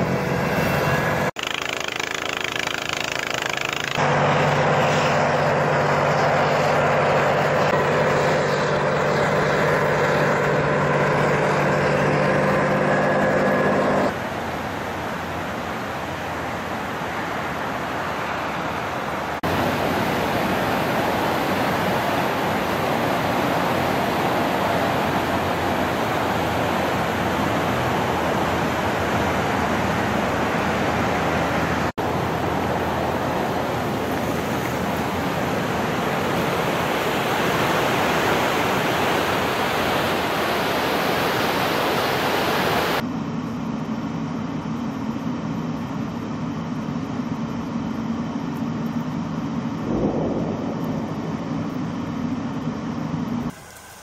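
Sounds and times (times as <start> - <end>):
fast-flowing water rushing: 14.1 - 43.0
low steady hum: 42.9 - 53.5.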